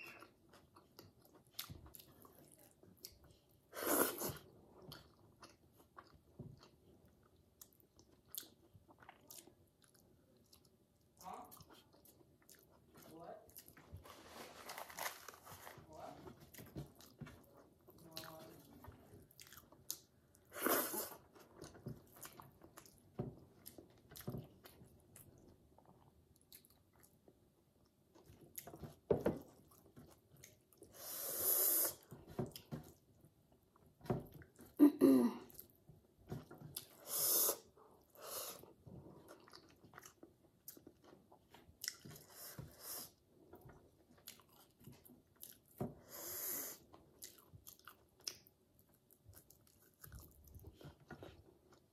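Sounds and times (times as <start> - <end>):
person chewing and lip smacking: 0.0 - 13.8, 16.5 - 31.0, 36.4 - 37.7, 38.6 - 42.5, 43.6 - 45.8, 46.7 - 51.9.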